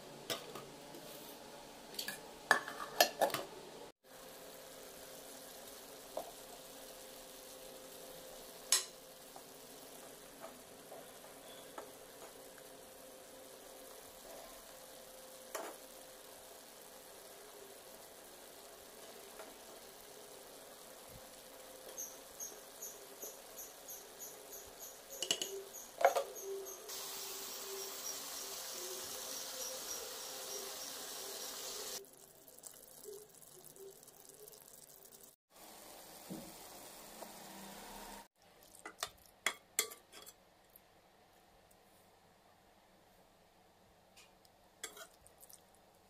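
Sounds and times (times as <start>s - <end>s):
vegetables sizzling in a pan: 4.0s - 40.4s, 44.8s - 45.5s
high chirping ticks: 21.9s - 26.9s
spoon scraping a pan: 39.0s - 40.4s, 44.8s - 45.2s.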